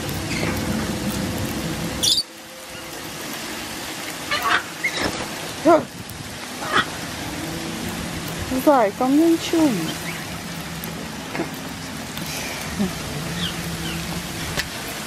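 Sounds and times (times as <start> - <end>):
parrot squawks and calls: 2.0 - 2.9, 4.3 - 5.2, 6.6 - 7.0, 13.3 - 14.0.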